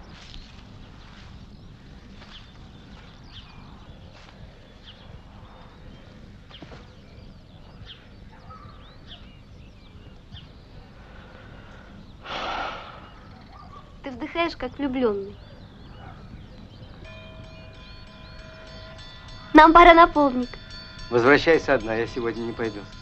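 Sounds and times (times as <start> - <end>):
birds chirping: 0.0 - 23.0
person breathing in deeply: 11.0 - 13.3.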